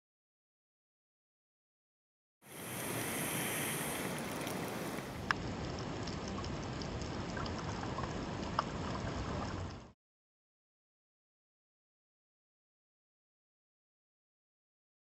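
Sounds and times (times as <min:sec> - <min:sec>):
underwater rushing hiss: 0:02.5 - 0:05.3.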